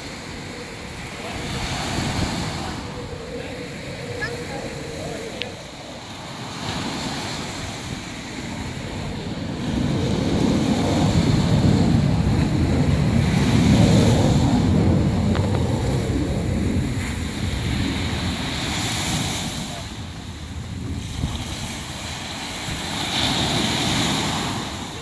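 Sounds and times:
small waves breaking on a beach: 0.0s - 25.0s
wind buffeting the microphone: 0.0s - 25.0s.

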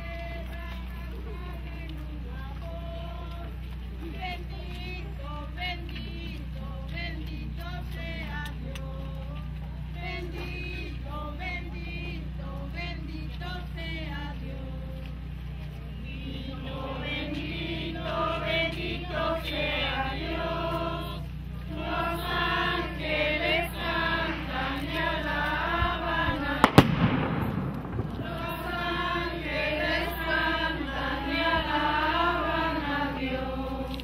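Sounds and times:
group singing a hymn: 0.0s - 34.0s
firework bang: 26.3s - 28.8s.

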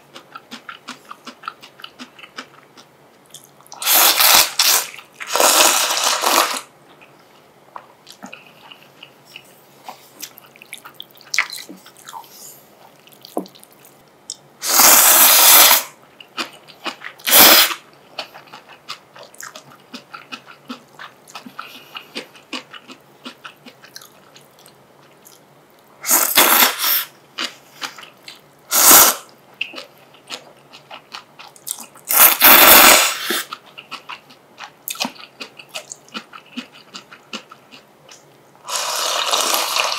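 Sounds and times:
quiet chewing: 0.0s - 3.8s, 6.9s - 14.5s, 16.2s - 17.3s, 17.9s - 25.9s, 29.6s - 32.1s, 33.3s - 38.4s
loud slurping of noodles: 3.8s - 6.7s, 14.6s - 15.9s, 17.3s - 17.8s, 26.0s - 27.1s, 28.7s - 29.2s, 32.1s - 33.5s, 38.7s - 39.9s.

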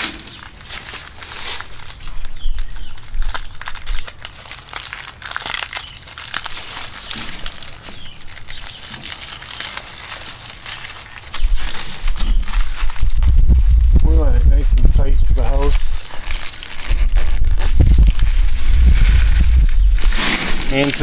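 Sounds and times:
foam tube rustling and scraping: 0.0s - 21.0s
low rumble: 11.5s - 20.7s.

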